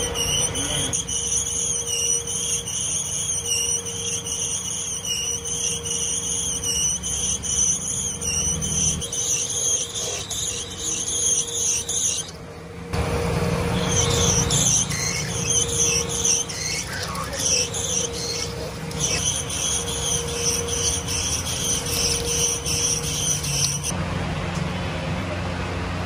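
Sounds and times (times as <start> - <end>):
lathe humming and whining: 0.0 - 26.0.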